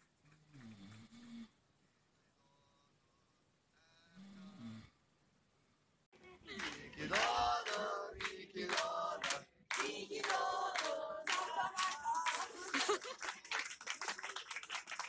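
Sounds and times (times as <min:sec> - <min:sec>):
group of people singing: 0:06.5 - 0:12.9.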